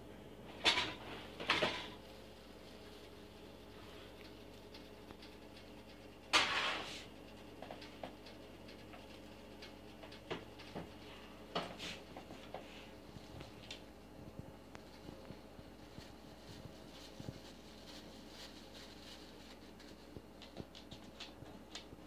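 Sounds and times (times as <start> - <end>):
small crackles: 1.3 - 6.4.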